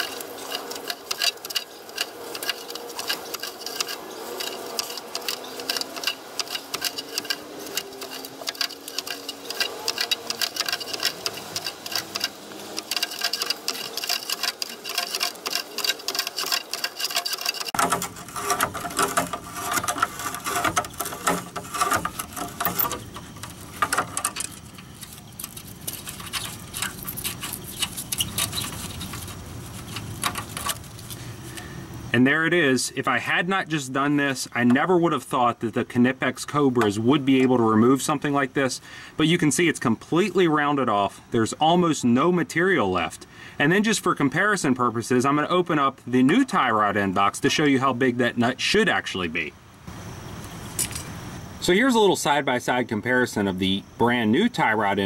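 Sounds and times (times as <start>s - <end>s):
pliers grating on rusted nut: 0.0s - 31.7s.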